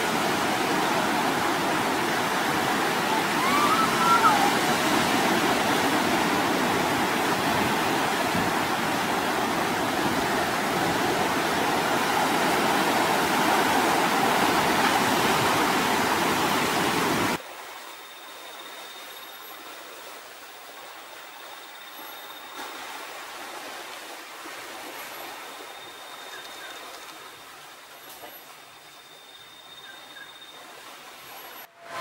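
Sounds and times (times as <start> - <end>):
heavy surf breaking waves: 0.0 - 17.4.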